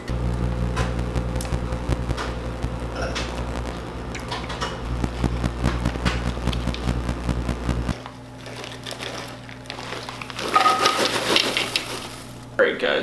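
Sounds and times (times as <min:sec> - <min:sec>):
low electrical hum: 0:00.0 - 0:13.0
kitchen handling clicks and crackles: 0:08.4 - 0:12.2.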